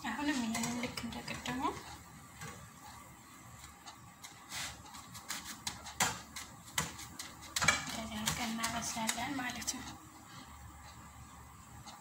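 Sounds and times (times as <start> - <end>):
spatula tapping and scraping pan: 0.2 - 2.7, 3.6 - 9.9.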